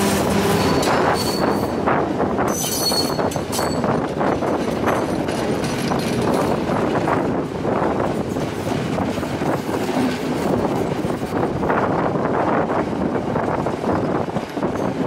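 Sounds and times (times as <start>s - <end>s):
train wheels rumbling on track: 0.0s - 15.0s
wheels clacking over rail joints: 2.4s - 11.6s.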